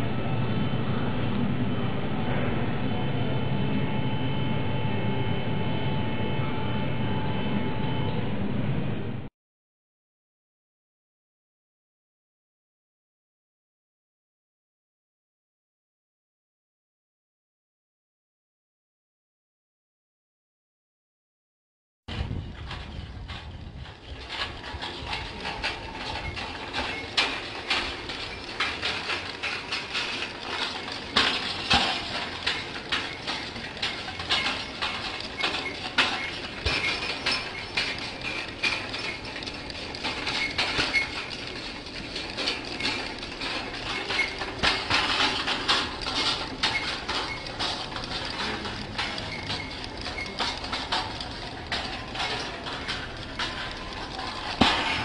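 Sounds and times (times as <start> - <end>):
wire hoops clattering on paving: 22.5 - 55.0.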